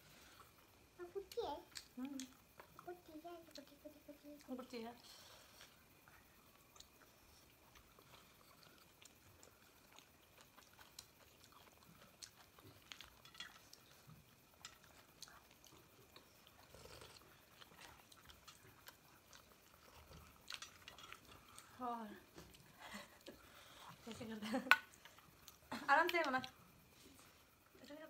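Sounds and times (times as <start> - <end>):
faint chewing: 0.0 - 28.0
small clicks and smacks: 0.4 - 4.8, 17.5 - 21.7, 24.2 - 26.6.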